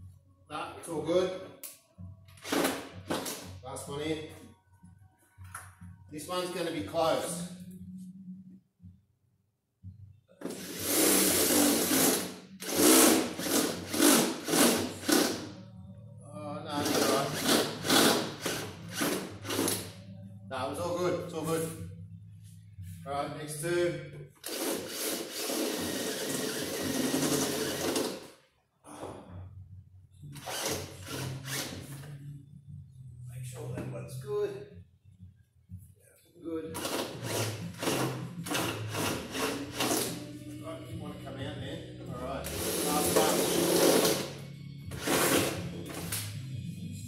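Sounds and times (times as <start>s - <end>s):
drill cutting sheet metal: 10.4s - 15.4s, 16.7s - 19.9s, 24.4s - 28.3s, 30.4s - 31.8s, 36.8s - 40.2s, 42.5s - 45.6s.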